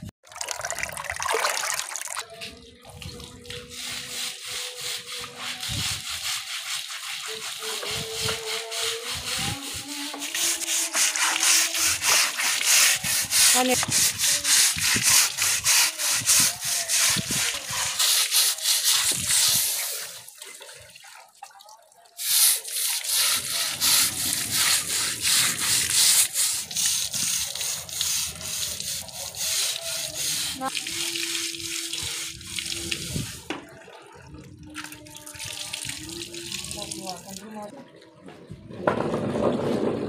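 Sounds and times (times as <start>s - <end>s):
scrub brush rasping on wet webbing: 3.7s - 20.3s, 22.2s - 33.5s.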